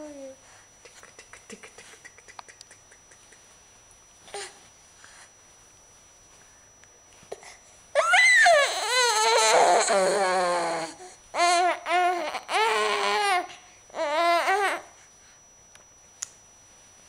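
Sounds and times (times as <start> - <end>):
infant crying: 8.0 - 14.9.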